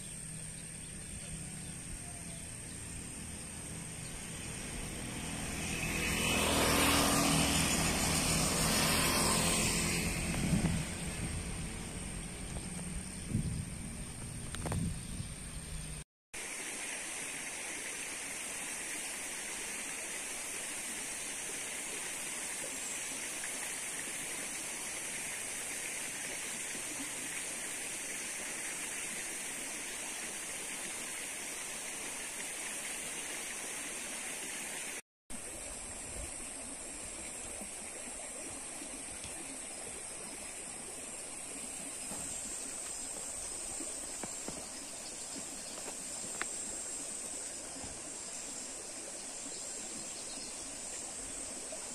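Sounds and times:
even hiss: 15.1 - 51.9.

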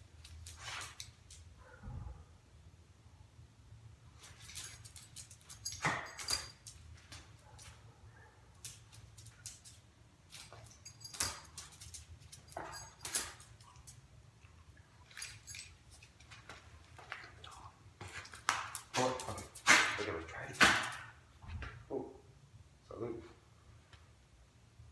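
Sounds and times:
faint low hum: 0.0 - 24.9
collar tags jingling: 4.0 - 16.6, 18.3 - 21.1
dog claws clicking on concrete: 4.3 - 7.8, 8.5 - 14.1, 18.2 - 21.2.

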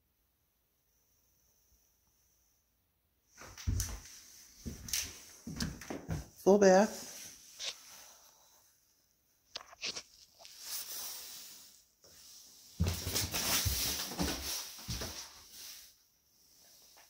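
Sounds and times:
footsteps in a room: 3.3 - 7.9, 12.0 - 15.9.

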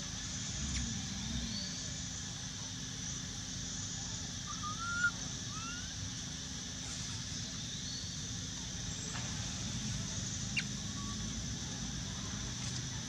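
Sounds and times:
outdoor background hiss and hum: 0.0 - 13.0
rising whistle-like animal call: 4.5 - 5.9.

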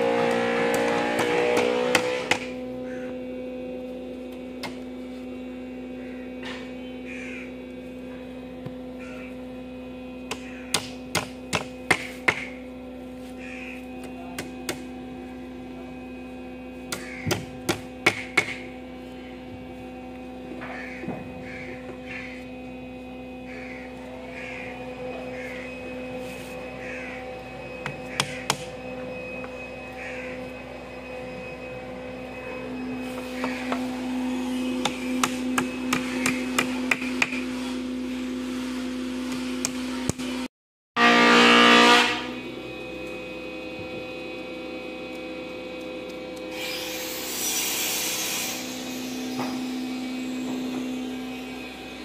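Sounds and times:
steady hum: 0.0 - 52.0
crows cawing: 2.8 - 3.2, 6.0 - 7.6, 9.0 - 9.4, 10.4 - 10.8, 13.3 - 14.0, 16.9 - 17.5, 20.6 - 22.5, 23.4 - 25.8, 26.7 - 27.4, 28.0 - 28.6, 29.9 - 30.5.

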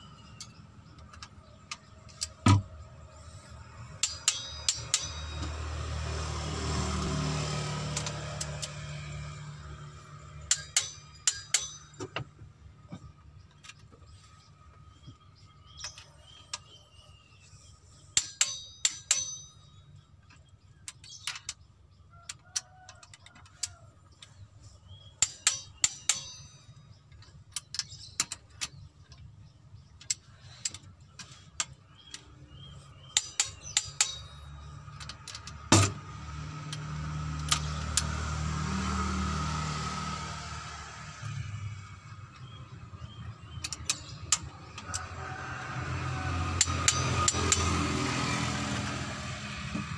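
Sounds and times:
ratchet ratcheting: 3.7 - 12.1, 30.0 - 45.2, 45.8 - 48.9
metallic wrench clicks: 3.9 - 5.4, 10.5 - 11.8, 43.5 - 45.0.

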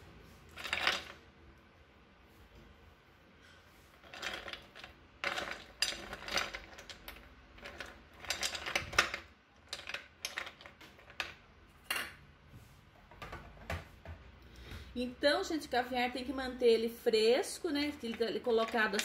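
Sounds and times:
ice cubes clinking in bowl: 4.1 - 10.7.

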